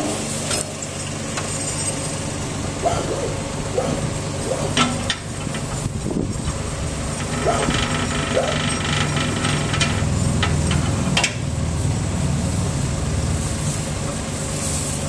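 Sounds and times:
loader engine idling: 0.0 - 15.0
short rattle: 4.7 - 11.5
sharp metallic knocks: 7.2 - 11.4.

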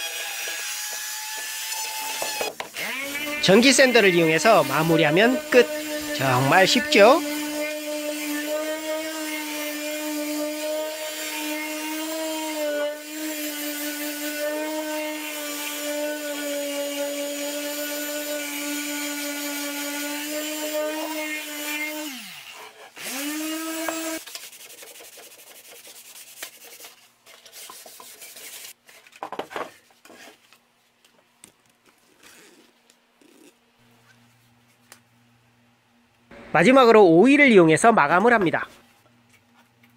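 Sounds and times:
electric sander humming: 2.8 - 13.2, 23.0 - 24.2.

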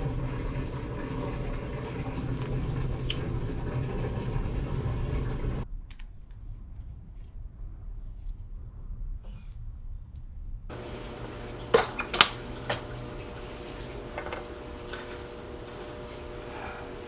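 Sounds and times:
faint steady hum: 10.7 - 17.0.

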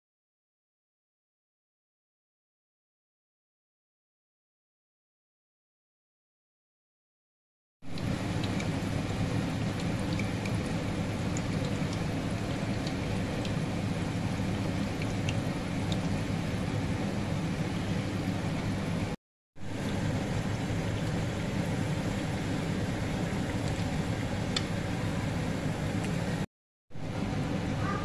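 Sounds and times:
crackles and pops of frying: 7.9 - 16.6, 19.8 - 25.1.

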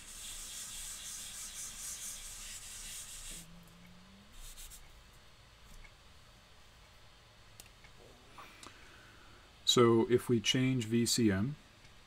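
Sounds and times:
eraser rubbing on whiteboard: 0.0 - 3.5, 4.4 - 4.9.

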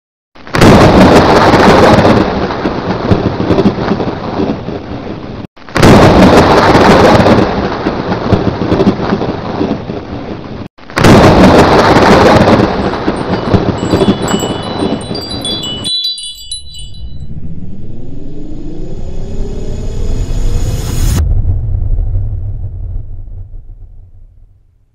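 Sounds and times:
thunderclap cracking and rumbling: 0.4 - 24.8
twinkling chime effect: 12.6 - 17.9
low rising tone: 16.6 - 24.2.

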